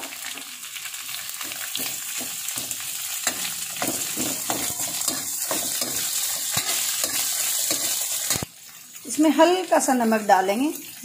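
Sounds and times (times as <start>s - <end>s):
onions sizzling in hot oil: 0.0s - 11.0s
spatula scraping against pan: 1.4s - 8.5s.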